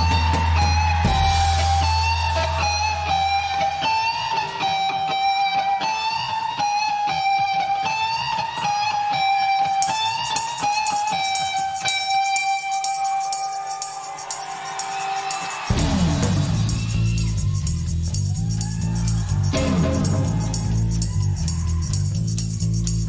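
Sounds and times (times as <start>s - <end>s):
electric guitar picking notes: 19.5s - 20.9s.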